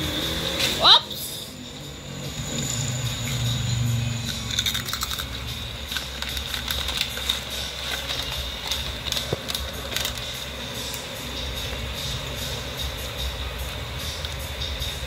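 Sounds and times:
dog crunching puffed snacks: 4.2 - 11.0
plastic snack bag crackling: 4.3 - 11.1.

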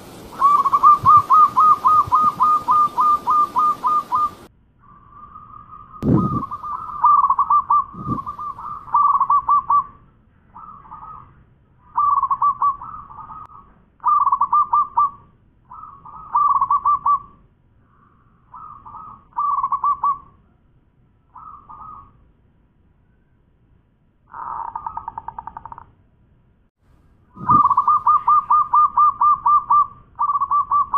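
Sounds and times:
dove cooing: 0.0 - 4.5, 6.0 - 9.9, 12.0 - 17.3, 18.6 - 20.3, 27.4 - 30.9.

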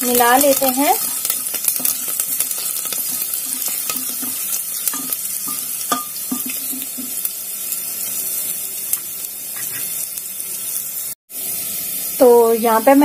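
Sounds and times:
spices sizzling and crackling in oil: 0.0 - 13.0
wooden spatula scraping a pot: 9.5 - 10.0.

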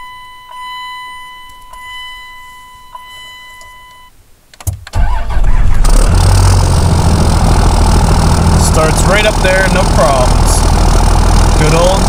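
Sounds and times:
diesel engine cranking and starting: 4.9 - 12.0
diesel engine idling loudly: 5.9 - 12.0.

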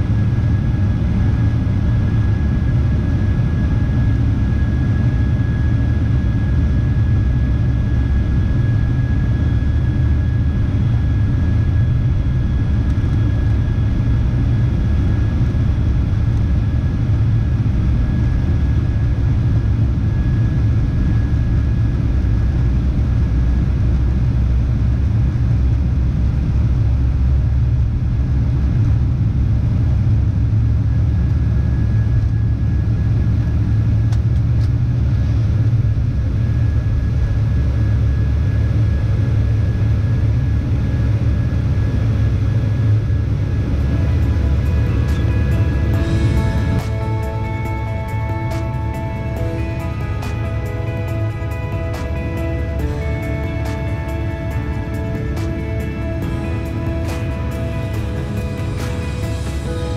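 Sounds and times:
high engine whine: 0.0 - 59.9
jet engine rumble: 0.0 - 59.9.

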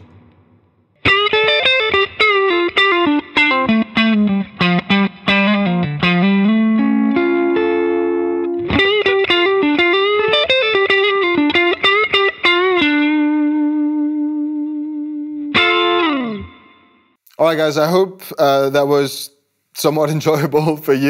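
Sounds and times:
electric guitar lead: 1.0 - 17.1.

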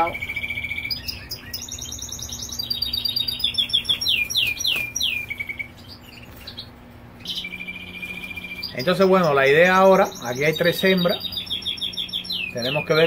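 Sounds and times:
faint low hum: 0.0 - 13.0
goldfinches singing: 0.0 - 13.0.

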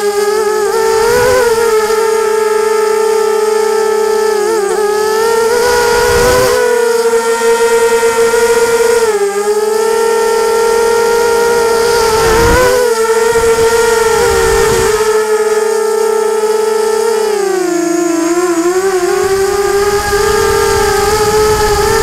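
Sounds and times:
drone motors whining: 0.0 - 22.0
wind rumble on microphone: 0.6 - 2.1, 5.0 - 15.4, 18.8 - 22.0.

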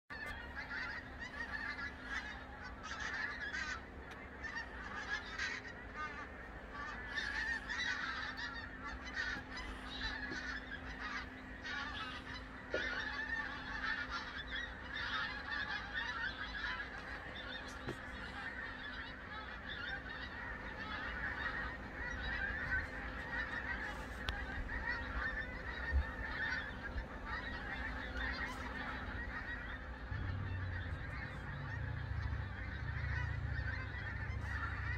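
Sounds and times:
geese honking overhead: 0.1 - 34.9.

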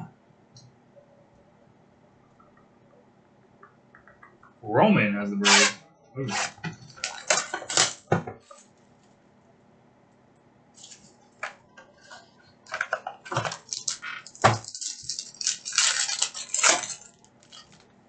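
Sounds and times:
foil wrapper crinkling and tearing: 13.3 - 17.8.

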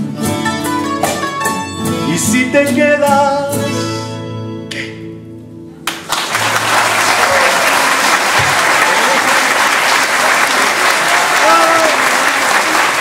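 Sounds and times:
audience applause: 5.8 - 13.0.

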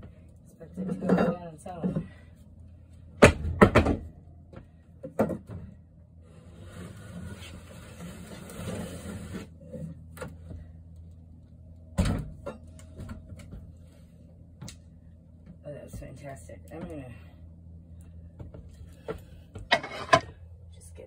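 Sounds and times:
cabinet scraping over floor: 6.3 - 9.5, 19.7 - 20.3.

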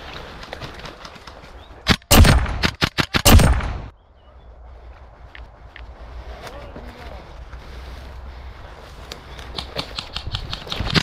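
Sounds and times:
airsoft rifle shots: 1.9 - 3.9.

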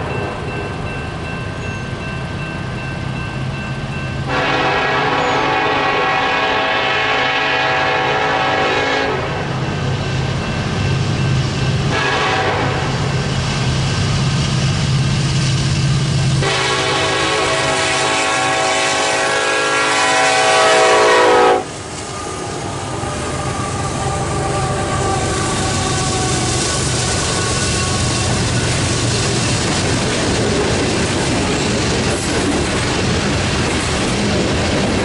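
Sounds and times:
train rumble and wheel clatter: 0.0 - 35.0
train air horn blasts: 4.3 - 9.6, 11.9 - 13.1, 16.4 - 28.5.

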